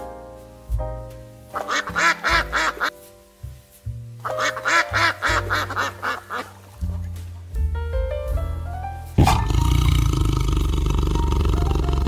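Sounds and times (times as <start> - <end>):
background music: 0.0 - 12.0
duck quacks: 1.6 - 2.9, 4.3 - 6.6.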